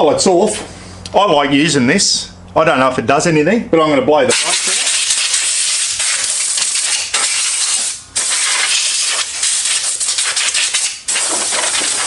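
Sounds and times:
compressed air gun hissing: 4.3s - 12.0s.

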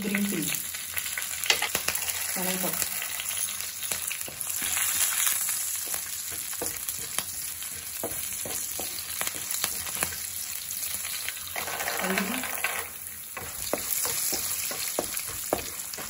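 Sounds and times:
food sizzling in hot oil: 0.0s - 16.0s
spatula taps and scrapes: 5.8s - 10.2s, 13.4s - 16.0s.

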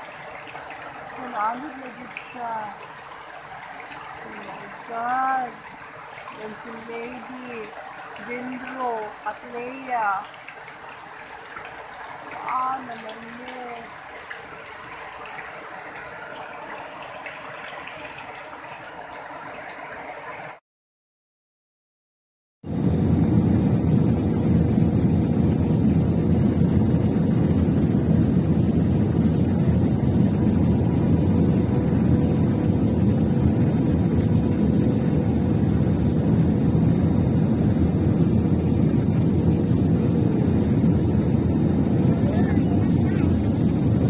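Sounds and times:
jet engines and airflow rushing: 22.7s - 44.0s.

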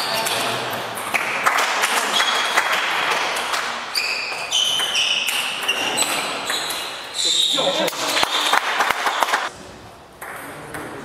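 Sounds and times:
shoes squeaking on floor: 0.0s - 0.8s, 2.0s - 2.8s, 3.9s - 9.5s.

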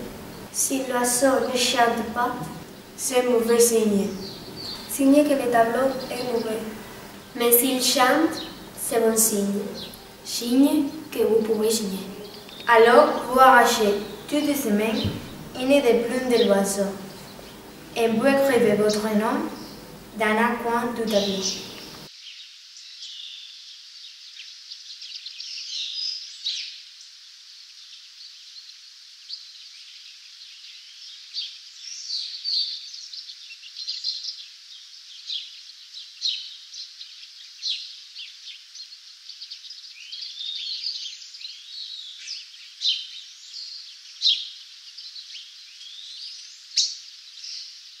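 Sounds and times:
birds chirping and singing: 0.0s - 22.1s
steady hiss: 0.0s - 48.0s.

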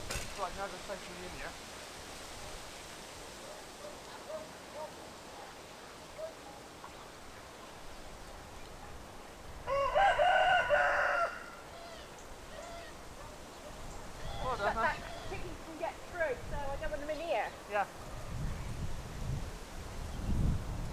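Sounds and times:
rooster crowing: 9.6s - 13.0s, 14.2s - 15.4s.

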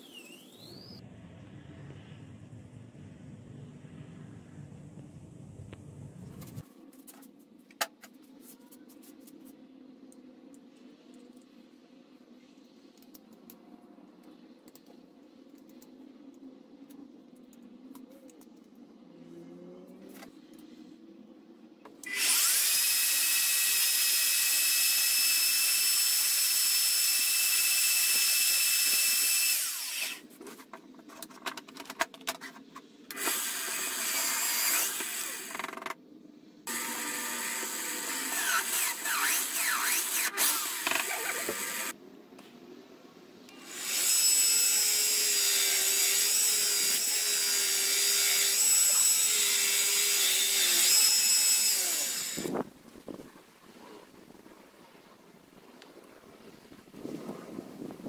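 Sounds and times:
bench grinder running: 36.7s - 41.9s, 43.6s - 52.5s
drill press drilling steel: 36.7s - 41.9s.

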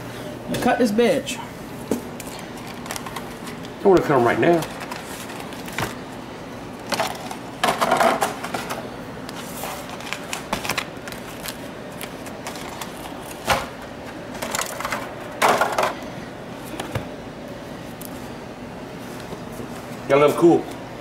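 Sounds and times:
aluminium foil pans clattering: 6.9s - 8.8s.

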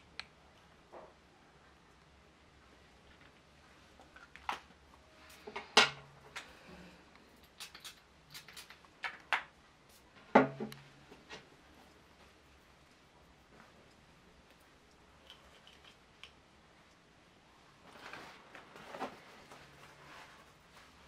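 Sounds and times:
small hard objects clicking and knocking: 7.4s - 9.5s, 15.2s - 16.4s.

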